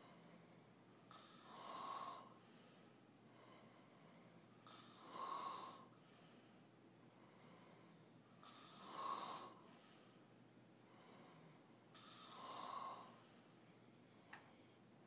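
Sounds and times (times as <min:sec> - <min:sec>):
man snoring: 0:08.4 - 0:09.6, 0:12.0 - 0:13.2.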